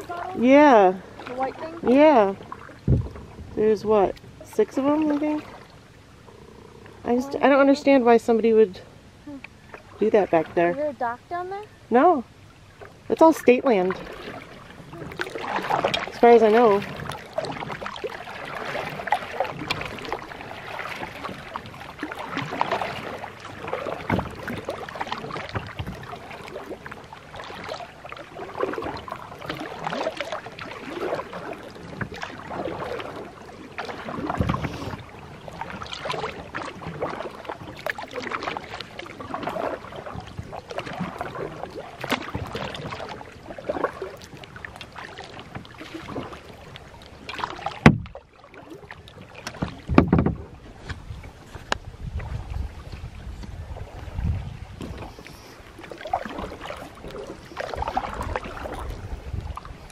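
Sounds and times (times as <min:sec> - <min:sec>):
water splashing against kayak hull: 0:00.0 - 0:59.9
knock on kayak hull: 0:02.9 - 0:03.2, 0:47.8 - 0:48.2, 0:49.5 - 0:50.5.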